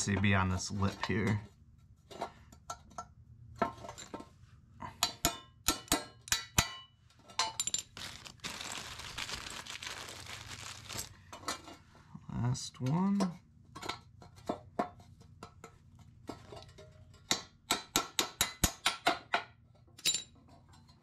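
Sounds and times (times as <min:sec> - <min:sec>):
metal parts clinking: 0:07.4 - 0:11.2.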